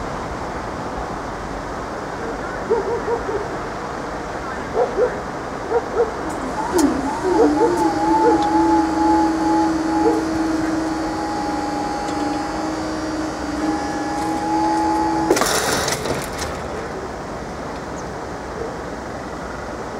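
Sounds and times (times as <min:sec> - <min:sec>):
two-tone crossing alarm: 0:06.2 - 0:15.8.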